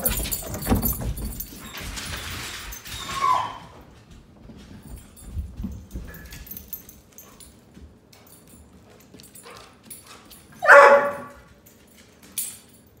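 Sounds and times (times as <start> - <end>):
dog barking: 10.6 - 11.5.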